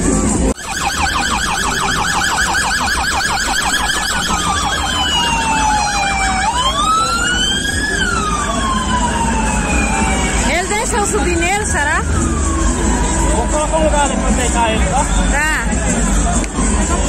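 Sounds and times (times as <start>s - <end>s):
electronic siren yelp and wail: 0.5s - 13.5s.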